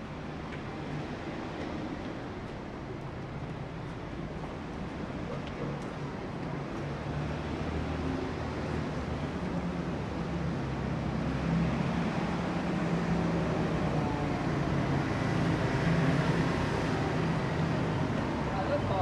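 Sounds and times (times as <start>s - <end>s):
traffic hum: 12.4s - 19.0s.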